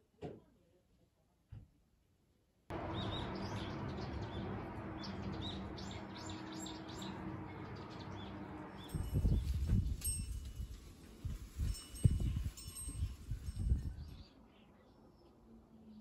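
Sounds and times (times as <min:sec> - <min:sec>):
small birds chirping: 0:02.7 - 0:10.7.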